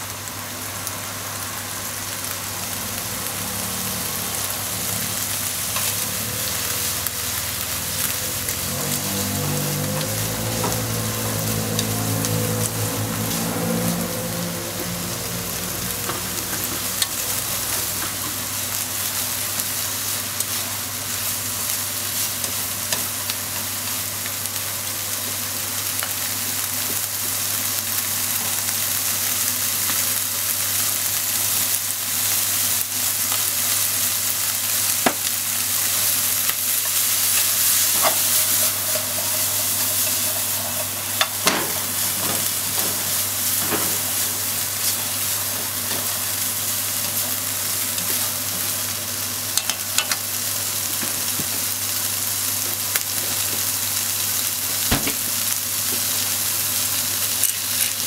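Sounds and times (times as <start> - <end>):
food sizzling in frying pan: 0.0 - 58.0
chopsticks clicking against pan: 49.6 - 50.2.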